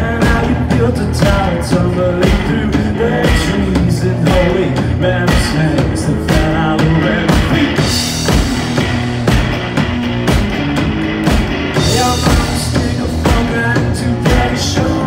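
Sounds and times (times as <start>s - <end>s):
live rock band: 0.0s - 15.0s
drum hits: 3.3s - 15.0s.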